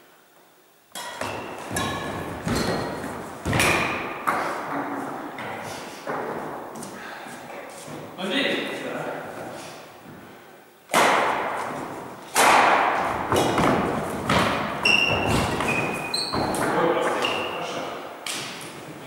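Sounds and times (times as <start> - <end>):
rackets hitting shuttlecock: 0.9 - 6.4, 10.9 - 17.5
sneakers squeaking on wooden floor: 1.2 - 6.9, 13.1 - 19.0.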